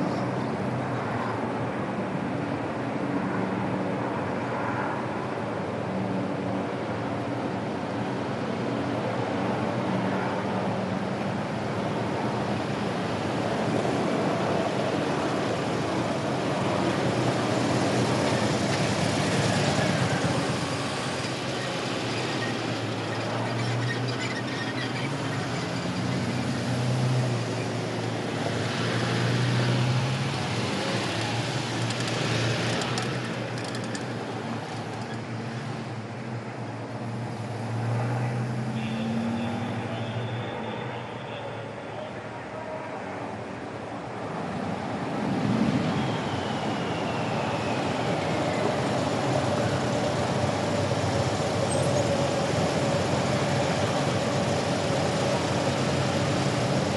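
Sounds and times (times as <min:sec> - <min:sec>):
vehicles passing on cobbles: 0:00.0 - 0:56.9
cars driving over cobblestones: 0:11.5 - 0:38.1
motorcycles passing: 0:13.7 - 0:35.9.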